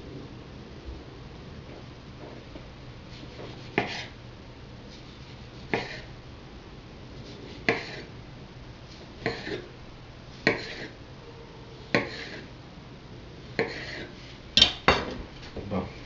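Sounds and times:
knife slicing tomato: 3.1 - 4.1, 7.4 - 8.1, 10.4 - 11.0.

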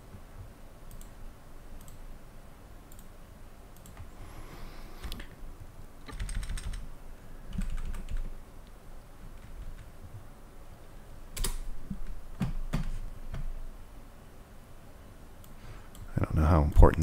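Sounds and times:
computer keyboard typing: 6.0 - 6.9, 7.5 - 8.3.

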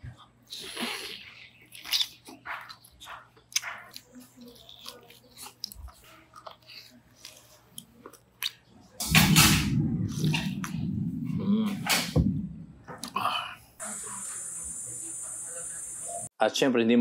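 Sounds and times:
person chewing meat: 0.5 - 8.7.

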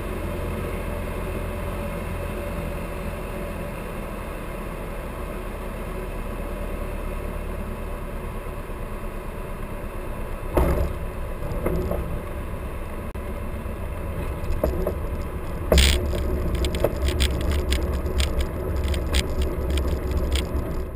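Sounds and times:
airplane engine idling: 8.8 - 20.9
airframe rattling: 14.2 - 20.9.

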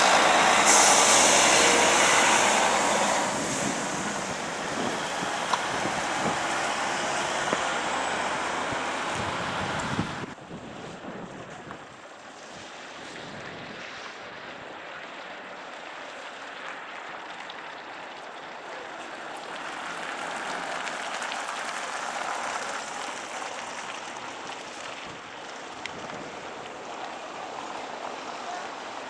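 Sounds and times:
rushing outdoor background noise: 0.0 - 29.0.

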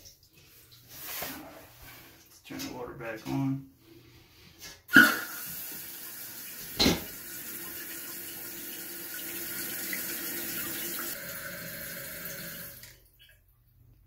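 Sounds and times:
running water hissing: 4.9 - 12.9.

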